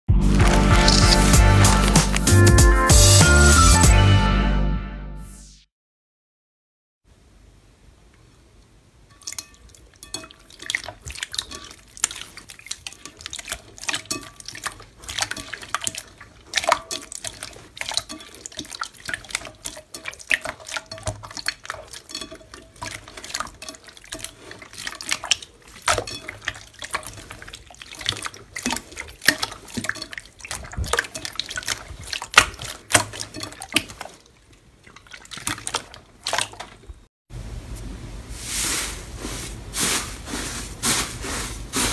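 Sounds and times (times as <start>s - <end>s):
hands squishing slime: 0.2s - 2.8s, 9.3s - 36.9s.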